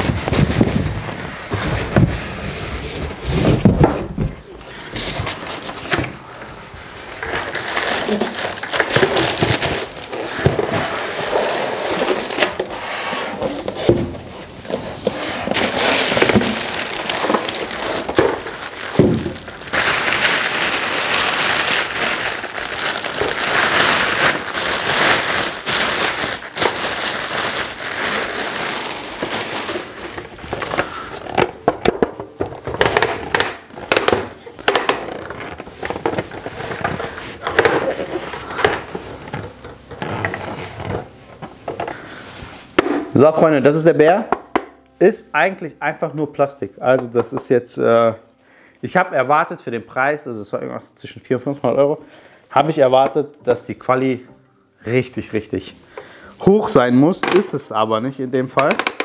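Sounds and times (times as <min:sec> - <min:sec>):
styrofoam rubbing and squeaking: 0:07.0 - 0:31.6, 0:32.8 - 0:41.2
plastic bag crinkling: 0:07.1 - 0:12.8, 0:14.5 - 0:42.8.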